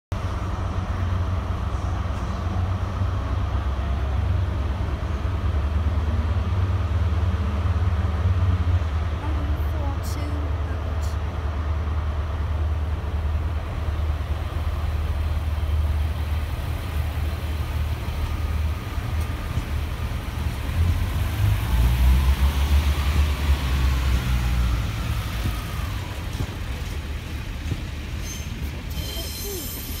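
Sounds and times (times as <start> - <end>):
diesel railbus engine drone: 0.1 - 30.0
faint high squeal: 28.2 - 30.0.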